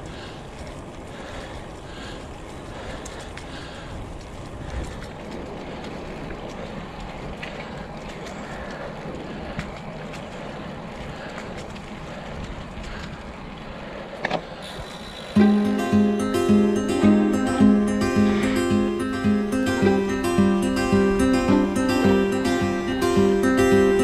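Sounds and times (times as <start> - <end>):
bicycle clicks: 0.0 - 15.4
bicycle tyre roar: 0.0 - 15.6.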